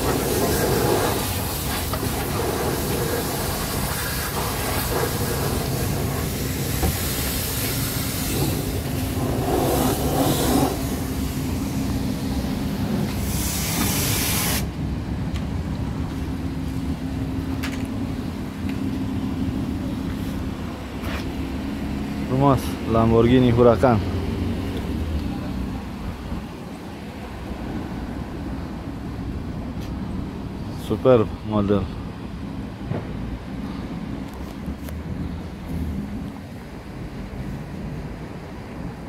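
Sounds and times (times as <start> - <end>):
pressure washer spraying: 0.0 - 14.7.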